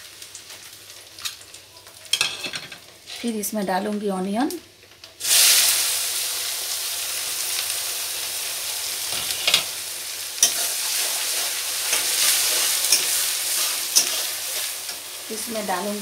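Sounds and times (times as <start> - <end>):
onions sizzling in hot oil: 0.0 - 16.0
metal spatula scraping pan: 10.4 - 15.0.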